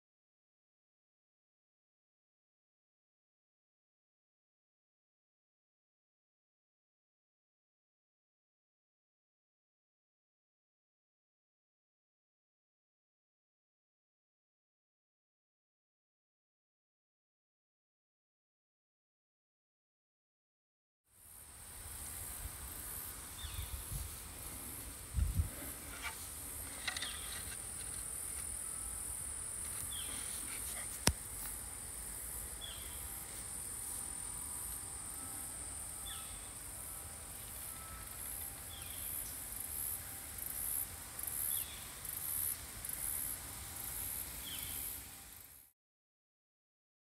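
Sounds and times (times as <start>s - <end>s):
insects droning: 21.1s - 45.7s.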